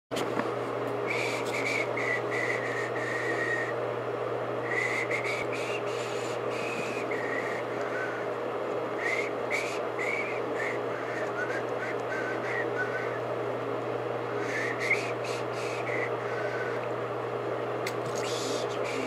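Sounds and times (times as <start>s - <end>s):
blower motor whirring: 0.2s - 19.0s
low hum: 0.3s - 19.0s
high whistling tones: 1.1s - 3.7s, 4.6s - 8.3s, 9.0s - 13.2s, 14.4s - 16.7s.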